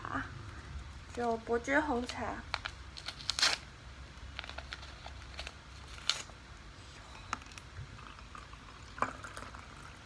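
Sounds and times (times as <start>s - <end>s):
water pouring into glass: 8.0s - 10.0s.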